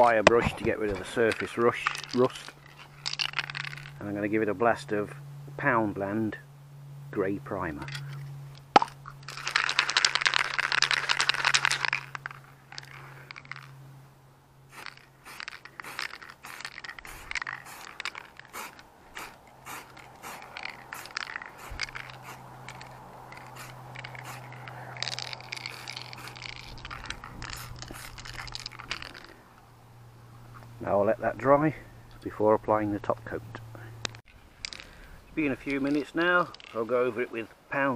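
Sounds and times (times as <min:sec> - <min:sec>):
spray can clicks and rattles: 0:08.8 - 0:13.6, 0:14.7 - 0:29.3
aerosol spray can hissing: 0:14.7 - 0:24.6, 0:25.2 - 0:28.8.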